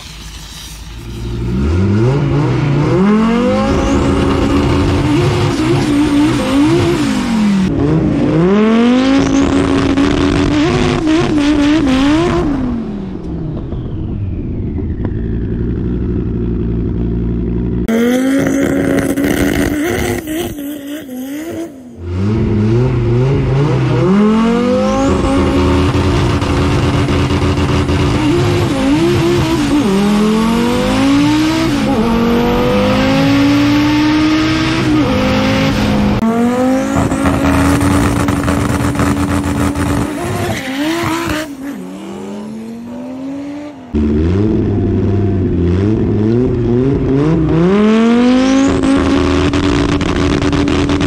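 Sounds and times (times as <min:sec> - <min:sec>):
loud rushing noise: 0:00.0 - 0:06.0
drag car engine revving: 0:00.0 - 0:13.4, 0:14.6 - 0:51.0.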